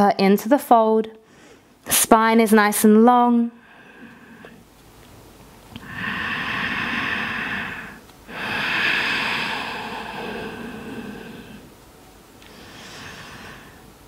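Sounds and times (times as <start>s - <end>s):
person breathing: 1.2s - 1.8s, 3.6s - 4.6s, 5.8s - 11.7s, 12.4s - 14.0s.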